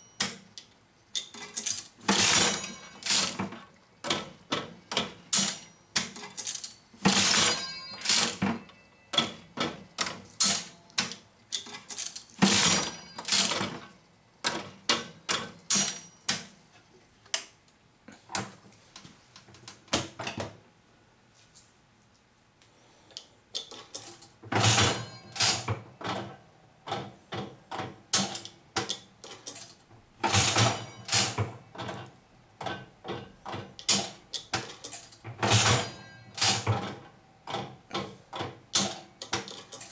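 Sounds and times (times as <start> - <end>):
slot machine reels clicking: 1.7 - 3.4, 5.3 - 8.4, 11.8 - 13.8, 24.6 - 25.7, 30.3 - 31.4, 35.5 - 36.7.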